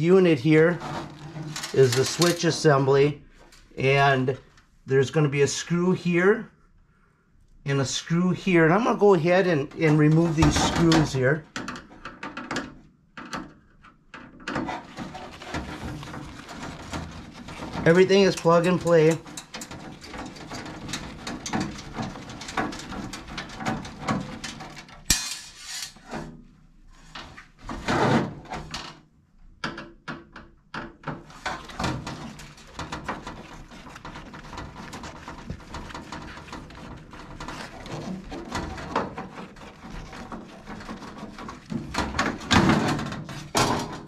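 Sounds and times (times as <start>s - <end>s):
metal clatter: 0.8s - 2.6s, 14.6s - 26.0s.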